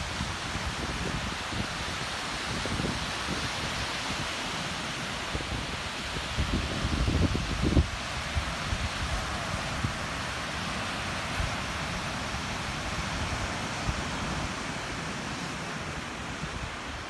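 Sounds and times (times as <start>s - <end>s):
surf breaking on a beach: 0.0s - 17.0s
wind buffeting microphone: 5.3s - 10.0s.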